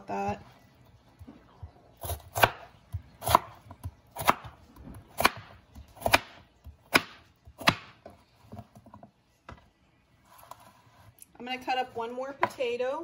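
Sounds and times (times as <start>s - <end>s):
knife chopping on cutting board: 2.0s - 8.8s.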